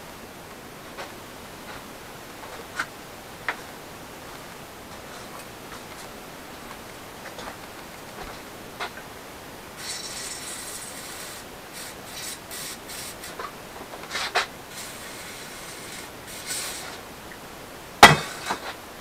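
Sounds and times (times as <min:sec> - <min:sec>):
aerosol spray can hissing: 0:09.8 - 0:13.4, 0:14.7 - 0:17.0.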